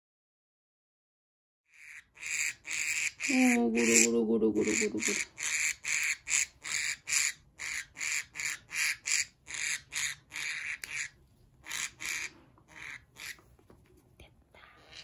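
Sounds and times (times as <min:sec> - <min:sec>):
budgerigar squawking: 0:01.7 - 0:13.4.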